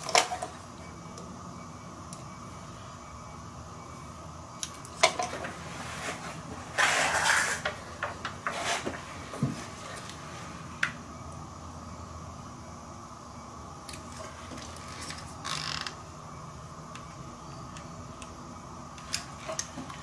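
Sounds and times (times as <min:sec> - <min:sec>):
short scraping rustle: 0:05.7 - 0:07.7, 0:08.5 - 0:09.1.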